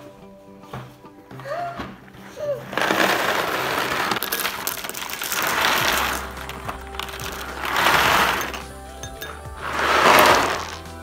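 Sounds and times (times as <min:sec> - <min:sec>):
background music: 0:00.0 - 0:11.0
cereal pouring from cardboard box: 0:02.7 - 0:08.8, 0:09.6 - 0:11.0
cereal clinking on glass bowl: 0:02.8 - 0:10.8.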